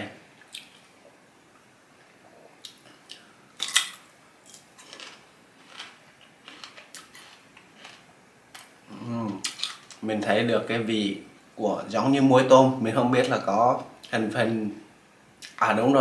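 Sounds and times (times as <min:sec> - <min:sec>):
crunchy chewing: 0:02.6 - 0:08.7.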